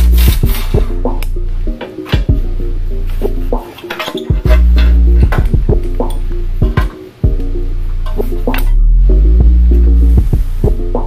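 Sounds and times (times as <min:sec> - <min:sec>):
background music with deep bass: 0:00.0 - 0:11.0
drum hits: 0:04.3 - 0:07.4.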